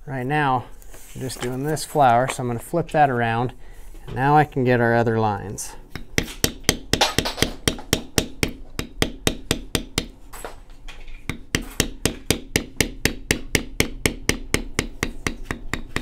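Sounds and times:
mallet tapping leather tool: 5.9 - 10.2, 11.3 - 16.0.

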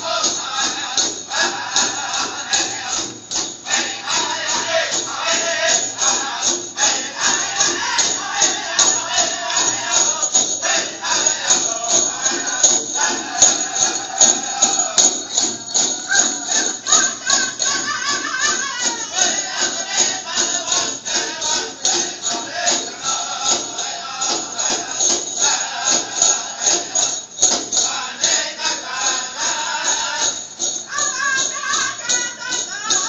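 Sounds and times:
bright jingling: 0.0 - 33.0
fast steady drumbeat: 0.0 - 33.0
voices singing: 0.0 - 33.0.

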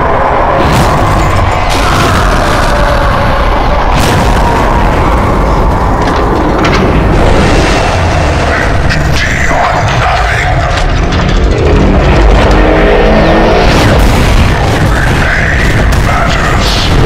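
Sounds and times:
deep booming rumble: 0.0 - 17.0
sharp explosion blasts: 0.4 - 10.4, 12.1 - 17.0.

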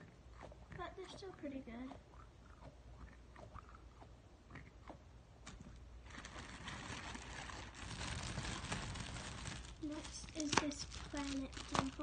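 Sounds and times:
squishy ball squelching: 0.0 - 12.0
rustling: 6.0 - 12.0.

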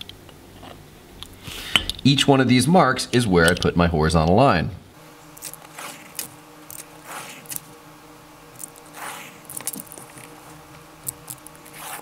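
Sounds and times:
faint steady hum: 0.0 - 12.0
pencil scratching on paper: 5.6 - 6.3, 7.0 - 7.6, 8.8 - 10.6, 11.6 - 12.0.

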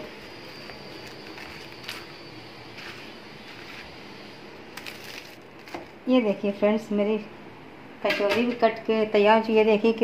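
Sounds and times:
sharp crackles: 4.8 - 5.8
knife crunching fried pastry: 4.8 - 5.9.

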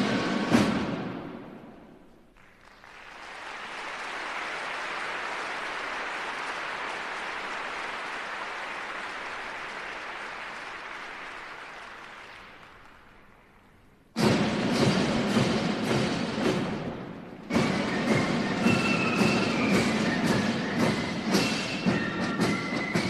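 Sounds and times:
crowd applause: 2.3 - 13.8.

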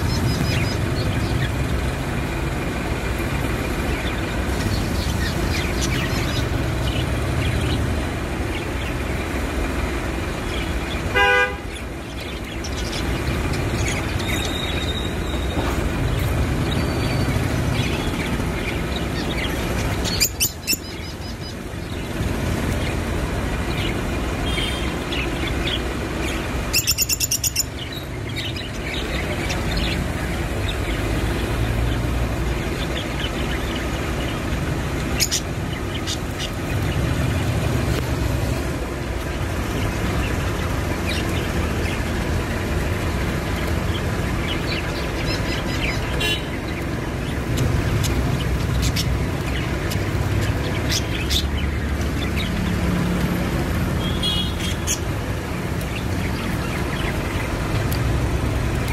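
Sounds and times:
budgerigars chirping: 0.0 - 2.0, 3.2 - 9.3, 10.4 - 22.2, 23.6 - 37.6, 43.8 - 52.8, 54.0 - 55.3.

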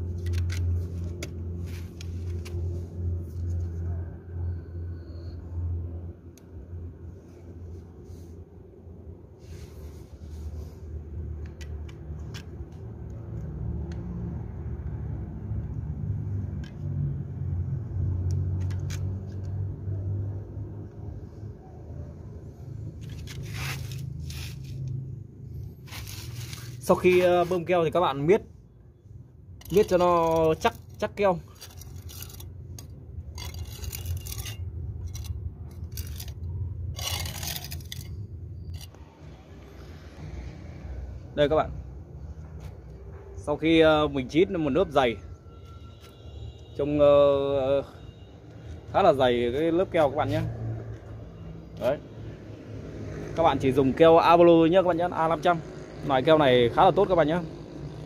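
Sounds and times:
metal scraper scraping sealant: 23.0 - 25.0, 25.8 - 27.7, 29.6 - 39.0.

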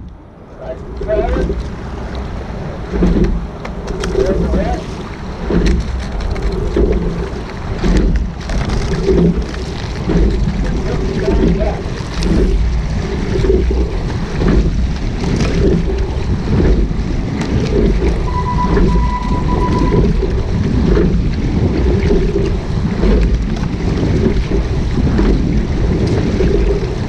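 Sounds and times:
rowing strokes: 0.0 - 27.0
water rushing along hull: 0.0 - 27.0
wind buffeting microphone: 0.0 - 27.0
steady beep tone: 18.3 - 20.4.

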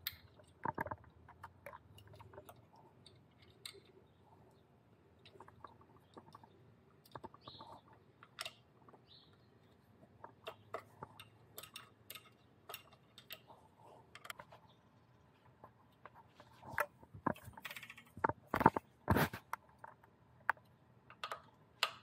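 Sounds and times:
small metal parts clicking: 0.0 - 4.2, 5.2 - 9.0, 9.7 - 14.6.

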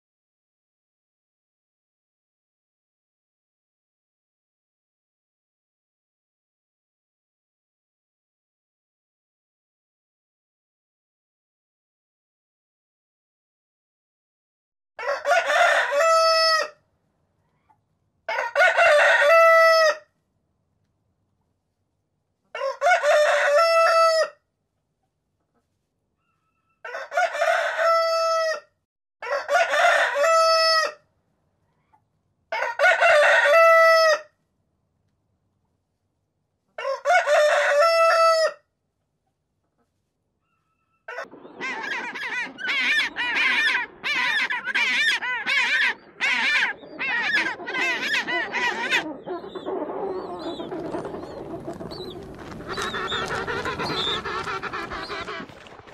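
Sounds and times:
rooster crowing: 15.0 - 16.8, 18.3 - 20.0, 22.6 - 24.4, 26.8 - 31.0, 32.5 - 34.3, 36.8 - 38.6
penguin braying: 41.6 - 51.2.

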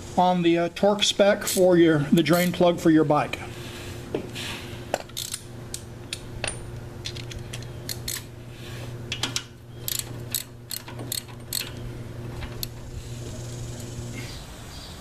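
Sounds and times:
ratchet wrench clicking: 5.1 - 5.8, 7.9 - 8.3, 9.9 - 11.8.

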